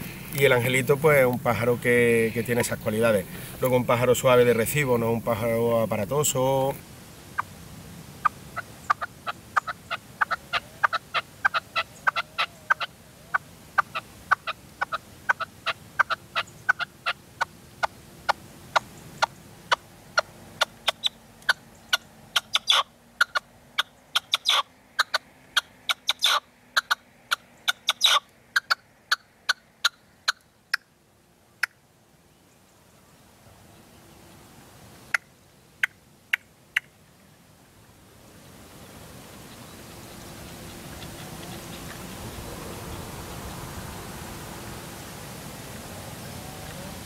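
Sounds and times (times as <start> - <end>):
partridge calling: 0.0 - 7.5, 8.2 - 30.9, 39.4 - 43.0.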